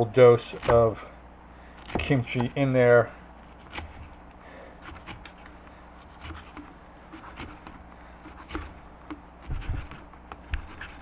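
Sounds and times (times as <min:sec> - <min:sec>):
knife chopping on cutting board: 0:00.6 - 0:01.0, 0:01.9 - 0:02.6, 0:06.0 - 0:11.0.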